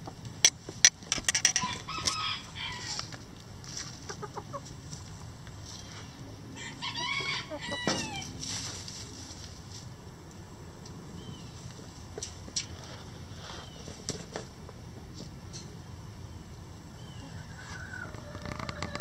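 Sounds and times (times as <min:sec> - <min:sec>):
chickens clucking: 0:00.0 - 0:09.9, 0:11.4 - 0:19.0
chicken rising and falling call: 0:01.3 - 0:03.1, 0:06.6 - 0:08.4, 0:17.2 - 0:19.0.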